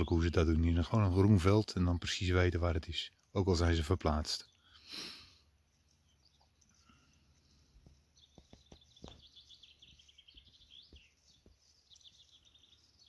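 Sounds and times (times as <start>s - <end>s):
distant bird chirping trills: 0.0s - 13.0s.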